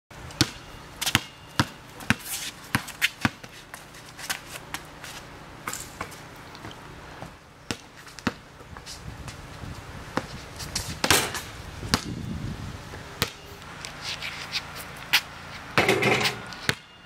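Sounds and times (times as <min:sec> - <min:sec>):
basketball bouncing on court: 0:00.4 - 0:03.5, 0:07.7 - 0:08.4, 0:13.2 - 0:13.4, 0:15.8 - 0:16.9.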